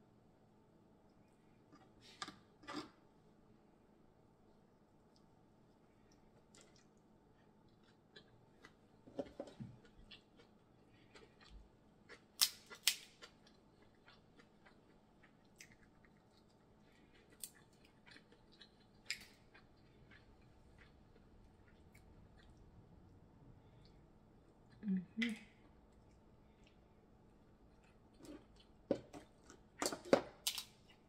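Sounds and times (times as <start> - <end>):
chewing and lip smacks: 6.0 - 8.8, 9.5 - 24.8
crab shells cracking: 12.3 - 13.4, 18.6 - 19.4, 29.8 - 30.8.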